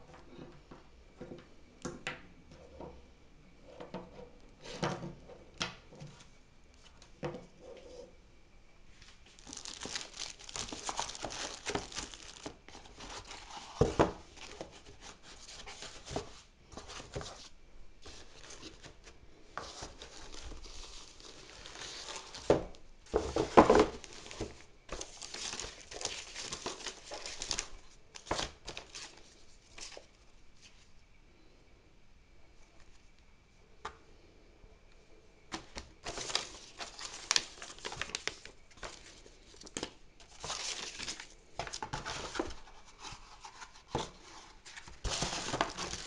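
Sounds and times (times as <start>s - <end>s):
packaging crinkling and rustling: 9.0s - 19.0s, 19.6s - 30.8s, 35.5s - 46.0s.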